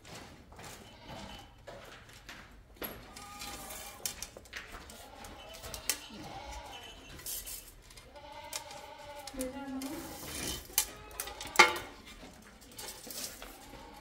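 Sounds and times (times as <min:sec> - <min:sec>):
sheep or goats bleating: 0:00.8 - 0:01.6, 0:03.1 - 0:04.2, 0:04.8 - 0:07.1, 0:08.0 - 0:12.0, 0:13.4 - 0:14.0.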